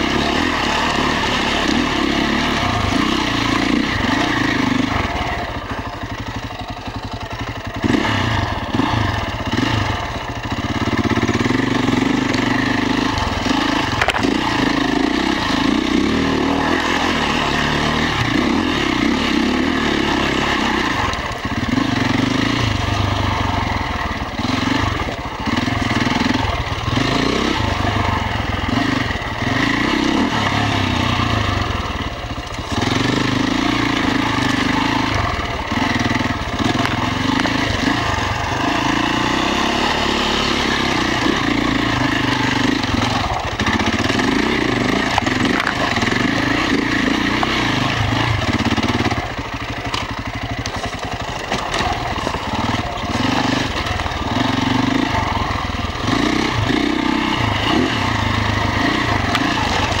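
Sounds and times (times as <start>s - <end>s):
motorcycle engine revving: 0.0s - 60.0s.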